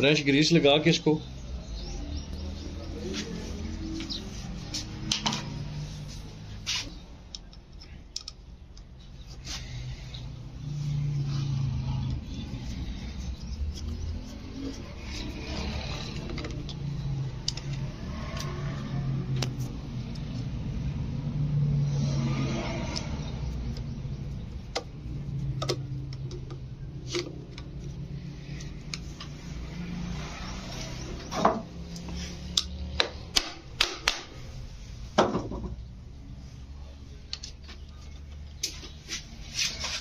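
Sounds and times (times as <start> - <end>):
sharp metallic clicks and knocks: 31.4 - 34.4.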